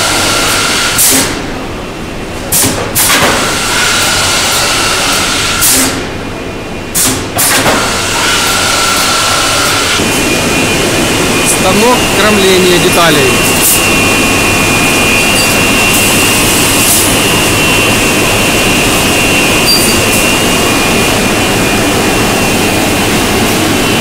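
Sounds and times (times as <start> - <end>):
factory machinery drone and whine: 0.0 - 24.0.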